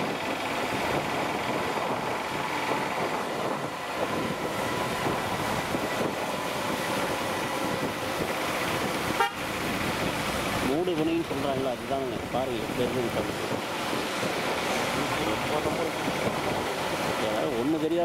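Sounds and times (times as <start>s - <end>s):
vehicle engine and road noise: 0.0s - 18.0s
wind noise: 0.0s - 18.0s.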